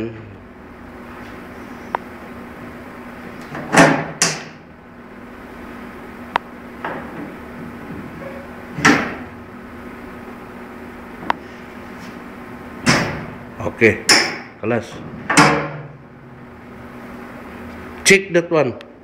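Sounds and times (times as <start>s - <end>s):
steady low hum: 0.0s - 19.0s
switchgear mechanism clunks: 3.5s - 4.6s, 12.8s - 13.4s, 15.2s - 15.9s.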